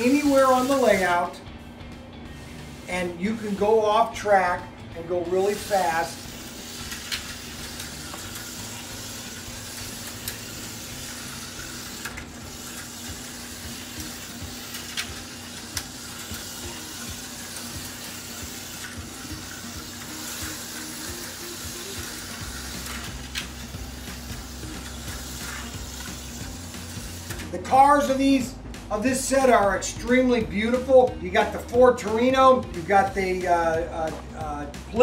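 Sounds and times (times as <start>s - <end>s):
slot car motors whirring: 0.0s - 35.0s.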